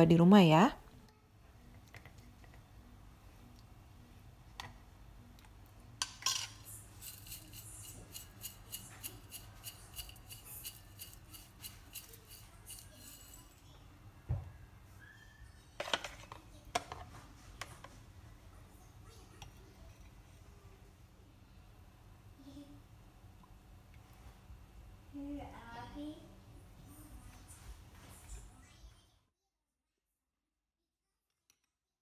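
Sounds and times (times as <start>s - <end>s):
dry pieces rattling in glass jar: 6.4s - 13.6s.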